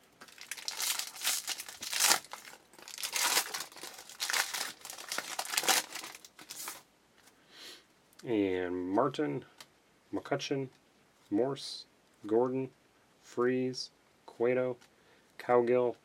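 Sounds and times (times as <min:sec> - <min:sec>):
foil wrapper crinkling and tearing: 0:00.2 - 0:06.8.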